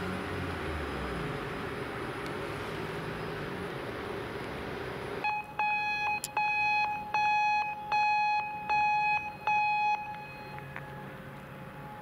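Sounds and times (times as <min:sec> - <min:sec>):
railway crossing signal beeping: 0:05.2 - 0:12.0.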